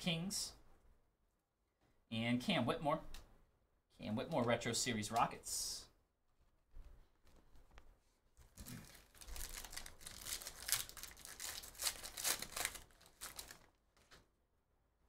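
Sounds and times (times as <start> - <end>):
foil wrappers crinkling and tearing: 8.6 - 13.8.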